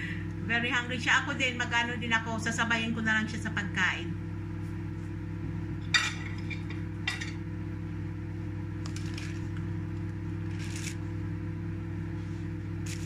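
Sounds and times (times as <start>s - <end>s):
steady low hum: 0.0s - 13.0s
dishes clinking: 5.8s - 7.4s.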